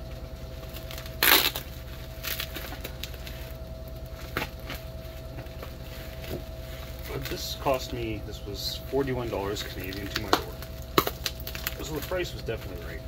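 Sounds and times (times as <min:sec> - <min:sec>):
plastic tape tearing: 0:00.7 - 0:03.4, 0:09.7 - 0:12.2
blade cutting packing tape: 0:00.8 - 0:03.2
small crackles and clicks: 0:09.3 - 0:13.0.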